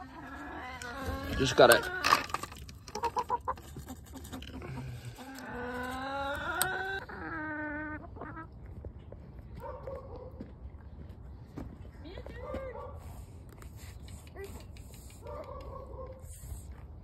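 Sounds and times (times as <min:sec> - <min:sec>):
chickens clucking: 0:00.0 - 0:08.7.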